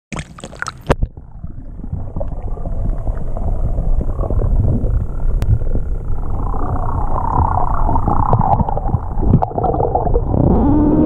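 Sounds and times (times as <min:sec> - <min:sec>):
underwater rumbling and bubbling: 0:00.1 - 0:11.0.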